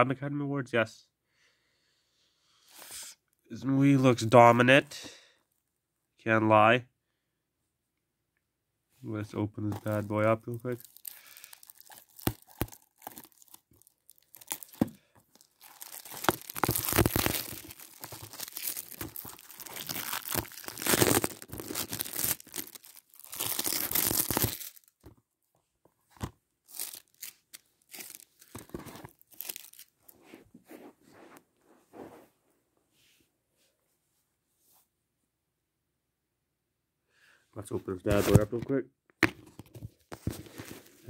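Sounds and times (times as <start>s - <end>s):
shrink-wrap crinkling and tearing: 9.8s - 25.0s, 26.6s - 30.1s.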